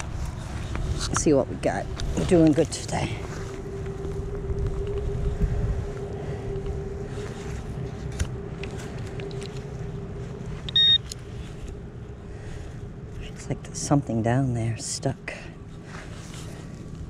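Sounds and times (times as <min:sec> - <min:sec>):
rustling: 0:00.0 - 0:13.4, 0:15.5 - 0:17.0
wind noise: 0:00.0 - 0:13.6
metal detector hum: 0:00.0 - 0:15.1
high electronic beep: 0:10.7 - 0:11.0.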